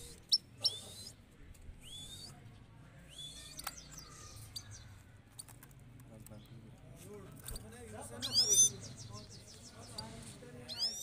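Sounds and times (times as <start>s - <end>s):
finches chirping: 8.2s - 11.0s.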